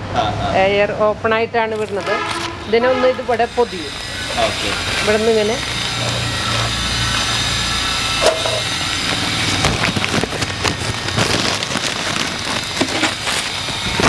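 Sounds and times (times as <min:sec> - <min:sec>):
newspaper rustling and crinkling: 0:01.7 - 0:02.6, 0:04.5 - 0:14.0.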